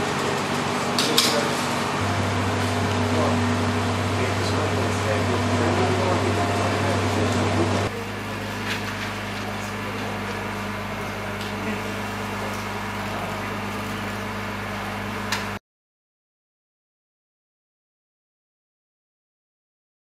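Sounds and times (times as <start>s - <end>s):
car engine idling: 0.0s - 8.6s
crowd voices: 0.0s - 13.8s.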